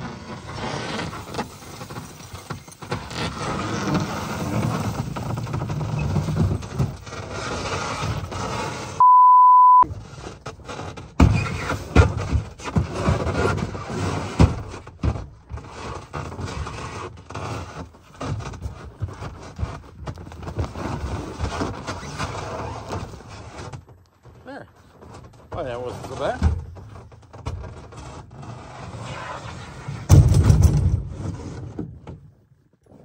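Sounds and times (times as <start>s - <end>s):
sled scraping on snow: 0.0s - 9.0s, 10.0s - 23.7s, 28.0s - 30.1s
electronic censor bleep: 9.0s - 9.9s
sharp knocks and thumps: 9.9s - 16.5s, 30.1s - 32.3s.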